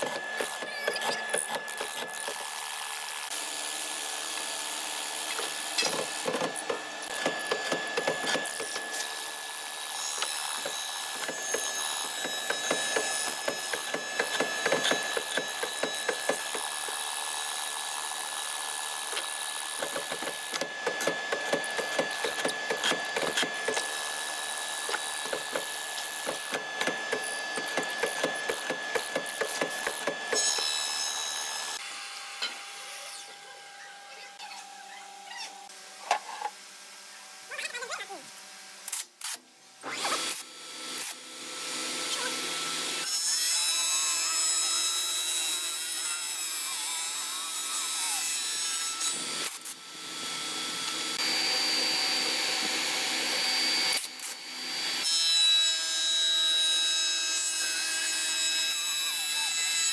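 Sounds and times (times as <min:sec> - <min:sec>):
mortiser motor whine: 0:00.0 - 0:33.5, 0:49.2 - 0:55.0.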